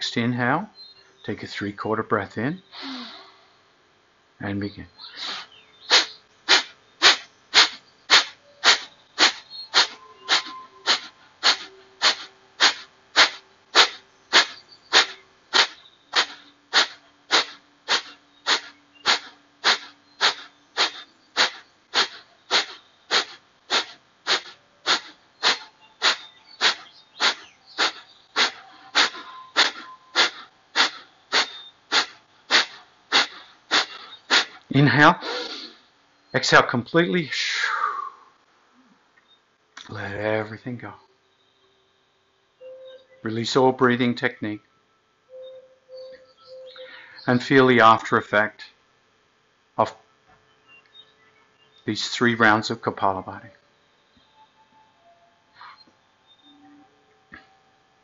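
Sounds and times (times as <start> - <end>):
forceful nasal exhalations: 2.7 - 3.5, 5.0 - 35.9.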